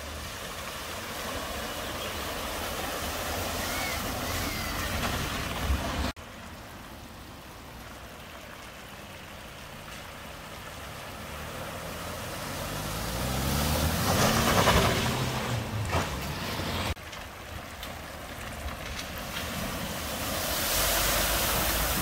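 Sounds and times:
water splashing: 0.0s - 22.0s
car engine: 10.3s - 17.0s.

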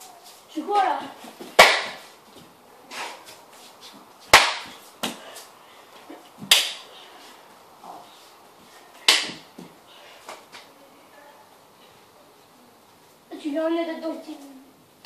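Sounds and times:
slaps on bare skin: 1.6s - 2.0s, 4.3s - 5.2s, 6.4s - 6.8s, 9.1s - 9.5s.

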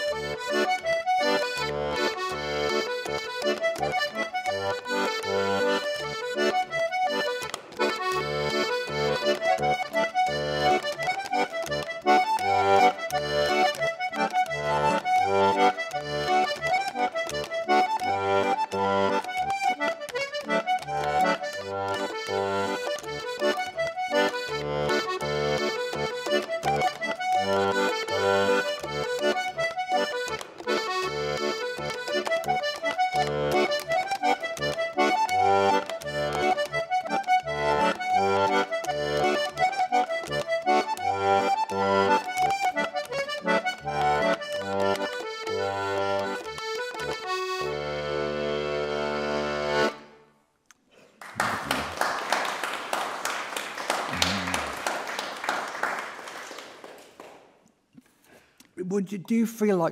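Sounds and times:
audience applause: 51.2s - 57.4s.

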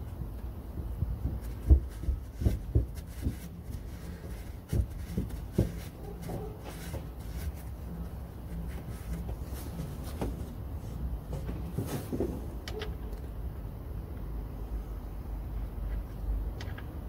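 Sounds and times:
low steady hum: 0.0s - 17.0s
soft handling knocks: 0.2s - 13.0s
rag wiping and rubbing metal: 0.8s - 12.3s.

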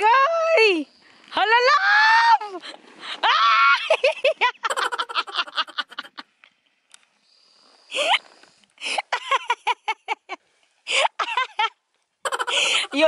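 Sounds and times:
person laughing: 3.8s - 6.2s, 12.3s - 13.0s.

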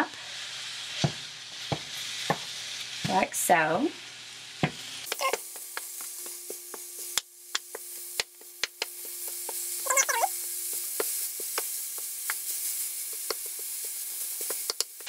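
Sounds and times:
meat sizzling in a frying pan: 0.0s - 15.0s
spatula tapping and scraping pan: 5.1s - 9.7s, 10.7s - 15.0s.

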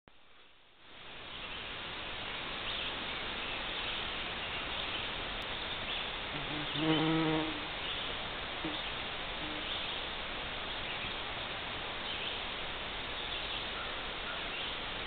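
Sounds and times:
steady background hiss: 0.1s - 15.0s
bumblebee buzzing in flight: 6.3s - 7.7s.

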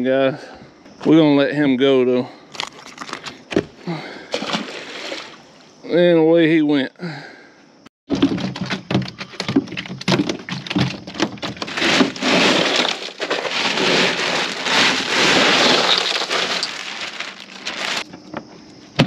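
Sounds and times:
ice cubes clattering into cooler: 8.1s - 18.0s.

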